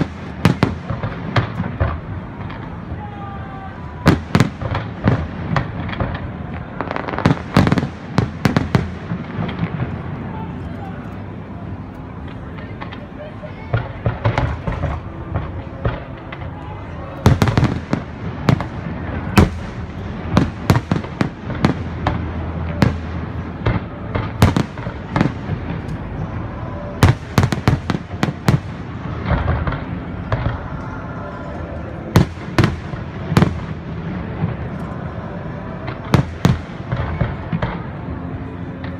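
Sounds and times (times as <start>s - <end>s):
fireworks bursting: 0.0s - 2.9s, 3.8s - 10.6s, 13.7s - 31.2s, 32.0s - 38.9s
steady background noise: 0.0s - 38.9s.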